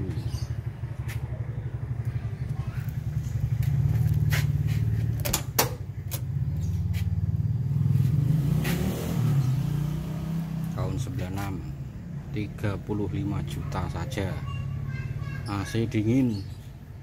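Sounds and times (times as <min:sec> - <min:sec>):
van engine idling: 0:00.0 - 0:08.2.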